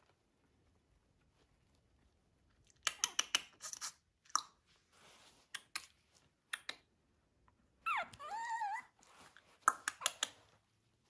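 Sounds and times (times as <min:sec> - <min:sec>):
puppy whining: 0:07.8 - 0:09.4.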